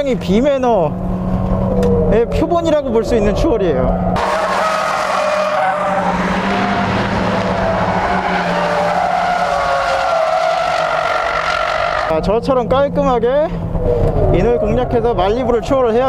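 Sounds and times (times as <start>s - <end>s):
racing car engines: 0.0s - 16.0s
tyres squealing: 4.2s - 12.1s.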